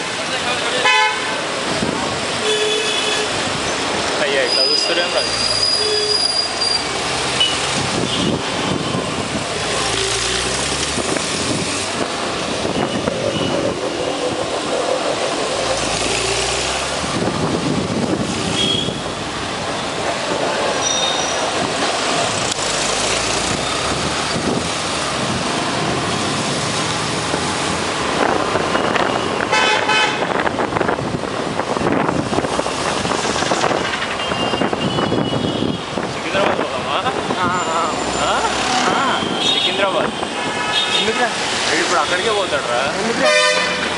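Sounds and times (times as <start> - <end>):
city traffic noise: 0.0 - 43.9
car horn toots: 18.6 - 19.1, 28.8 - 30.4, 43.2 - 43.9.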